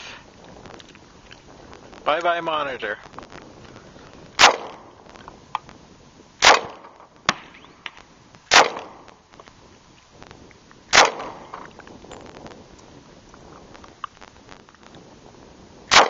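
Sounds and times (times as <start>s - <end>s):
pistol shots with echo: 4.4s - 4.9s, 6.4s - 7.7s, 8.5s - 9.1s, 10.9s - 11.6s.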